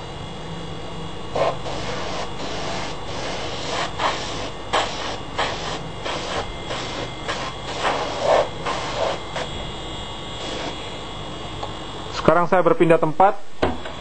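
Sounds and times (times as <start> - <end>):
small compressor humming: 0.0 - 14.0
airbrush hissing bursts: 1.3 - 9.7, 10.4 - 10.9.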